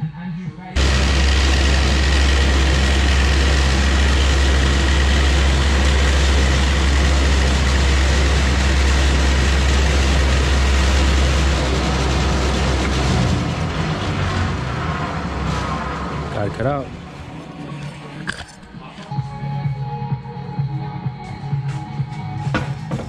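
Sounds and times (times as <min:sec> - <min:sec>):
bandsaw motor hum: 0:00.8 - 0:17.0.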